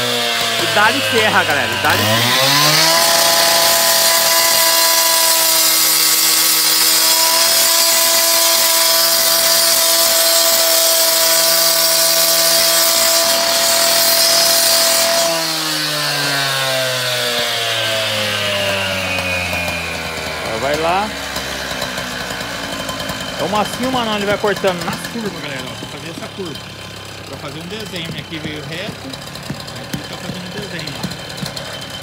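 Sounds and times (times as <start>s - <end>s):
cut-off saw engine: 0.0s - 32.0s
saw blade grinding concrete: 0.0s - 32.0s.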